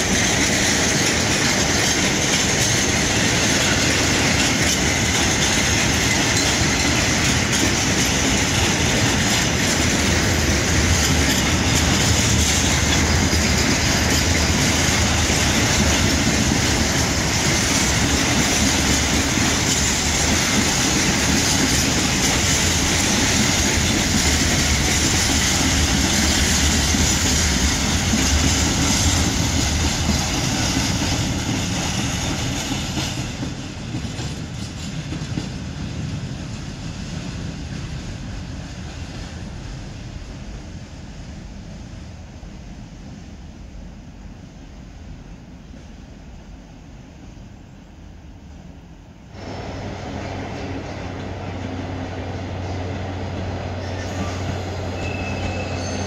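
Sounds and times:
freight train wheels on rails: 0.0s - 56.0s.

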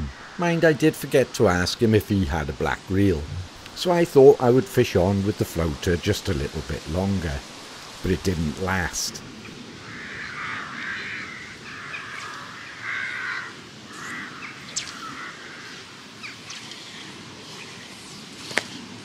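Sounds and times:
crows cawing: 9.7s - 16.7s.

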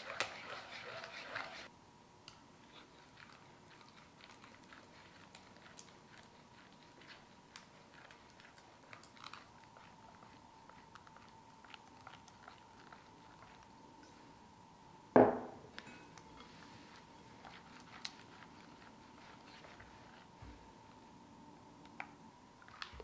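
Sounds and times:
spatula stirring in glass bowl: 0.0s - 1.7s, 8.4s - 14.2s, 15.8s - 20.4s.

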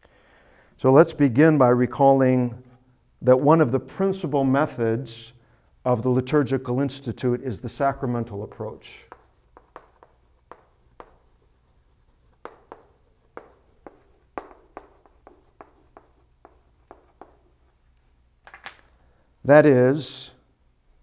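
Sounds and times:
chalk tapping and scratching on blackboard: 7.7s - 17.8s.

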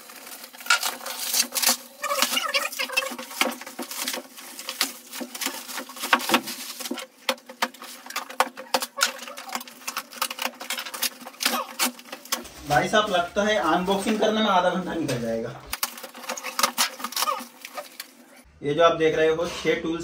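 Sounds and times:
plastic wrap crinkling and ripping: 0.0s - 13.2s, 15.7s - 18.5s.

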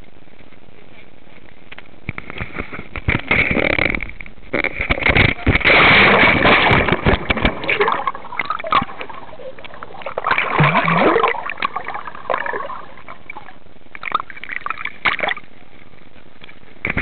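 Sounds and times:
water sloshing and gurgling: 2.3s - 15.6s
water splashing: 4.8s - 15.6s.

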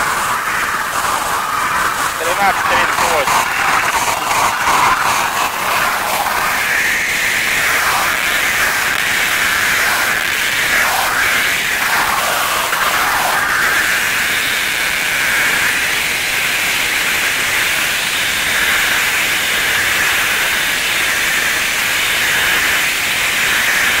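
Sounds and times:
stretch wrap film hissing: 0.0s - 13.8s.

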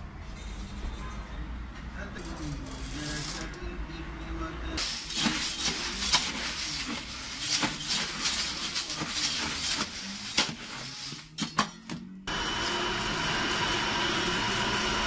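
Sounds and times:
coffee beans rattling in metal tin: 4.8s - 11.2s
electric coffee grinder whirring: 12.3s - 15.0s.

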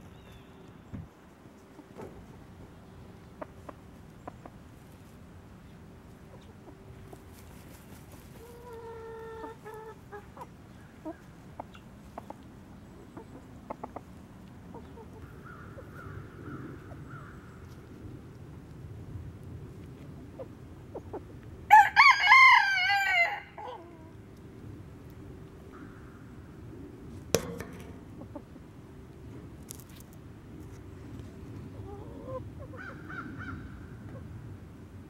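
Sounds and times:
chickens clucking: 1.6s - 18.0s, 19.8s - 21.6s, 27.3s - 29.9s, 30.6s - 34.4s
pecking among straw: 6.8s - 9.8s.

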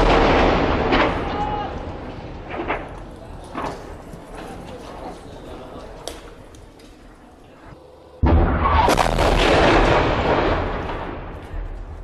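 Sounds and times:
artillery boom with rolling rumble: 0.0s - 4.5s, 8.2s - 12.0s.

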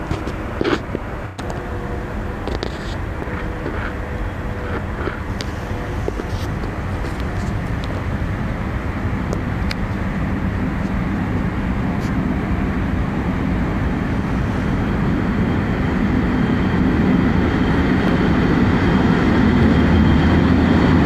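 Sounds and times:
train rumbling: 0.0s - 21.0s.

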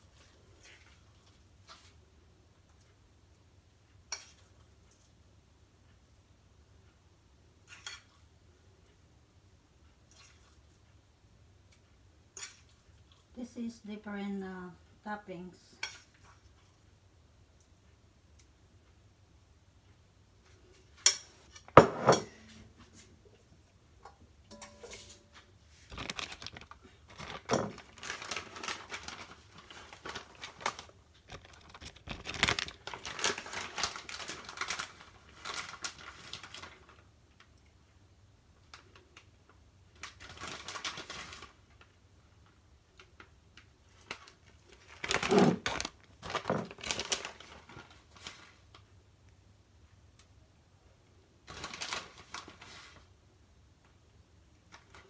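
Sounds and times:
shredded cheese crinkling: 25.8s - 37.5s, 40.0s - 48.9s, 51.4s - 53.0s.

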